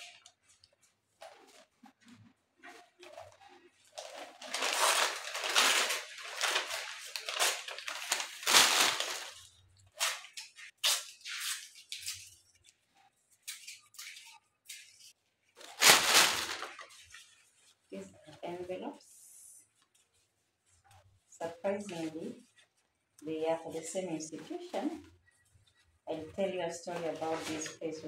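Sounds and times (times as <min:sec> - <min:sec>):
papers rustling: 0:00.0 - 0:17.9.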